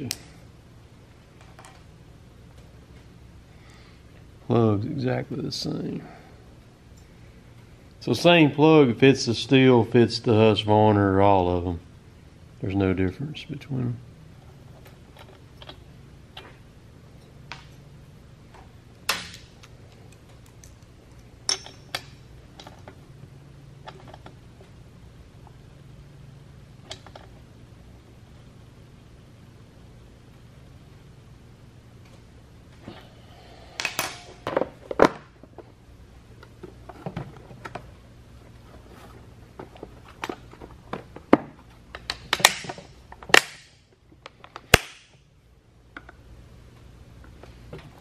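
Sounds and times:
tools clattering: 21.4s - 22.9s
metal tools clinking: 21.5s - 22.1s.

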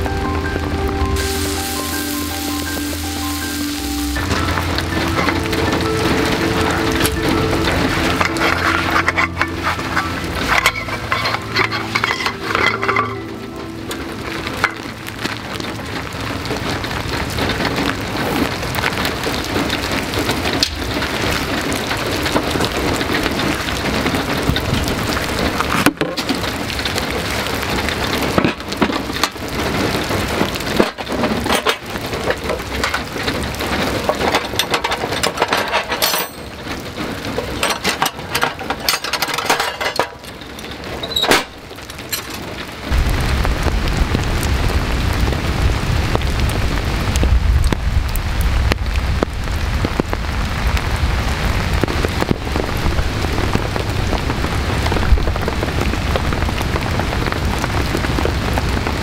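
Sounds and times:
deep rumble: 0.0s - 25.8s, 40.5s - 59.0s
heavy rain falling: 0.0s - 59.0s.

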